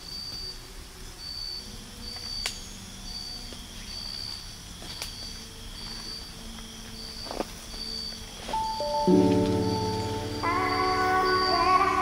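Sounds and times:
faint held music tones: 0.0 - 12.0
insect chirping: 0.0 - 12.0.

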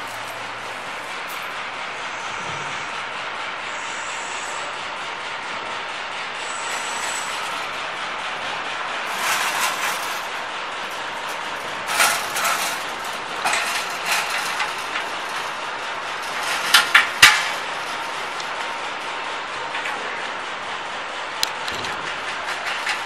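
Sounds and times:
steel parts clanking: 0.0 - 1.6, 6.4 - 20.0, 21.7 - 23.0
steady background noise: 0.0 - 23.0.

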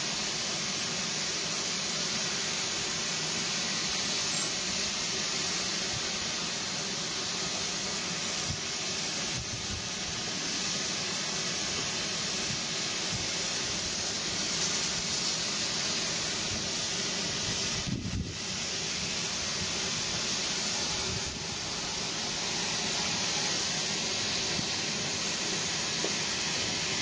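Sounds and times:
steam locomotive valves hissing: 0.0 - 27.0.

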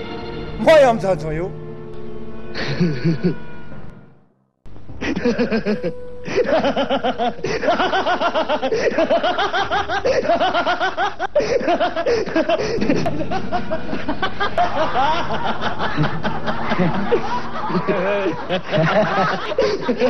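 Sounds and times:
group laughing: 2.5 - 3.6, 5.0 - 20.0
person laughing: 2.6 - 3.5, 5.0 - 20.0.

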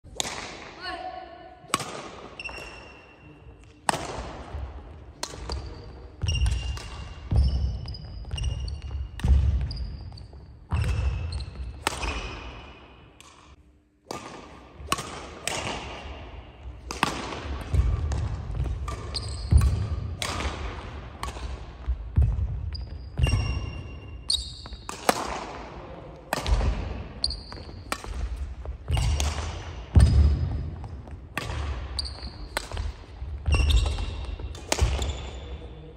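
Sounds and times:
racket striking shuttlecock: 0.1 - 0.7, 1.7 - 2.8, 3.8 - 7.7, 10.8 - 22.5, 23.2 - 31.8, 32.4 - 35.4
shoes squeaking: 33.4 - 35.5.

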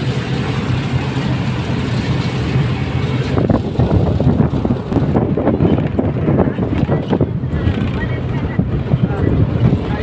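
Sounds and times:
bus engine drone: 0.0 - 10.0
road noise: 0.0 - 10.0.

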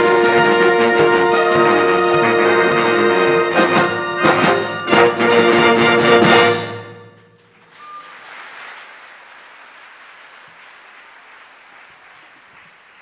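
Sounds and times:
wind band playing chord: 0.0 - 7.2
percussion hits: 0.0 - 8.1
audience applauding: 7.5 - 13.0.

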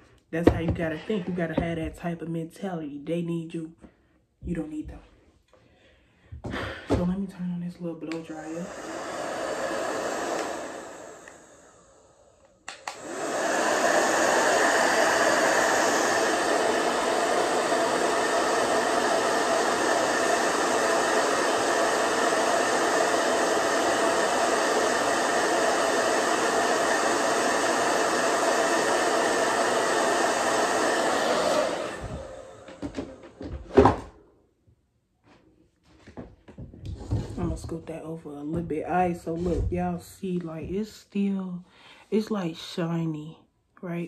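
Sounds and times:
blow dryer blowing: 0.0 - 2.1, 6.3 - 34.2, 36.8 - 40.9
blow dryer switch click: 12.4 - 13.1.

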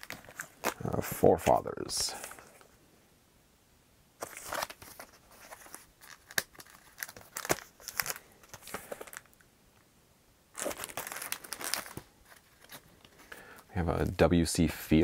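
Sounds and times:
plastic crinkling and rustling: 0.0 - 2.7, 4.2 - 9.4, 10.5 - 14.1.

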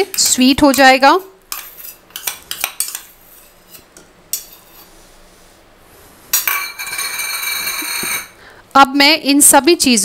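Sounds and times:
spoon scraping metal bowl: 0.0 - 5.0, 6.4 - 8.4.

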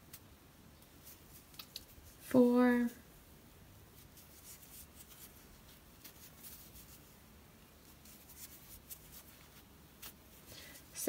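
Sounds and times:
crochet hook scratching yarn: 4.0 - 7.2, 7.8 - 11.0.

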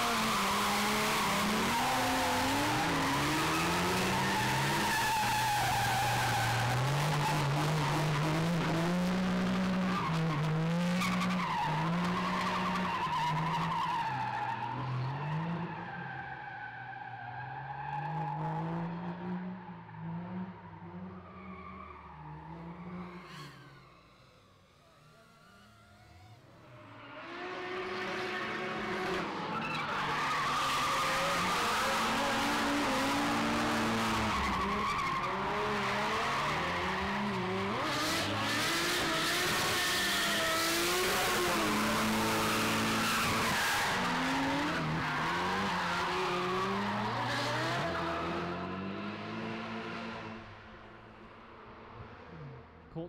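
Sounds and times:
car engines revving hard: 0.0 - 13.5, 22.4 - 51.0
tyres skidding and squealing: 0.0 - 19.0, 19.6 - 49.4.

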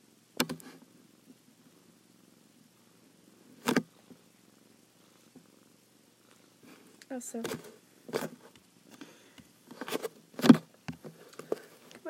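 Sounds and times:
hand bumping a tablet: 0.4 - 0.7, 3.6 - 3.9, 9.4 - 11.6.

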